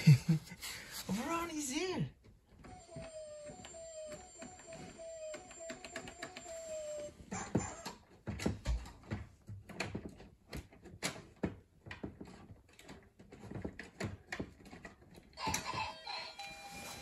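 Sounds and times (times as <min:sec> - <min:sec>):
stuffed toys rustling and knocking: 0:07.3 - 0:16.5.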